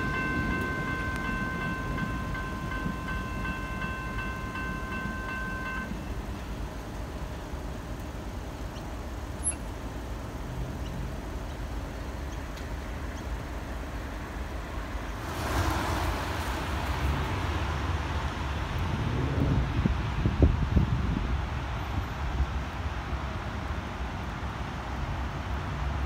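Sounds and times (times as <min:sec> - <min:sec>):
low rumble of cars: 0:00.0 - 0:26.0
loud rushing noise: 0:15.2 - 0:20.0.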